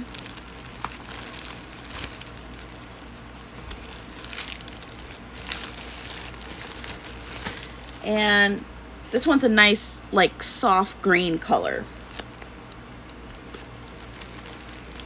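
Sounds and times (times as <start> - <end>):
plastic bag crinkling: 0.0 - 8.0, 12.0 - 15.0.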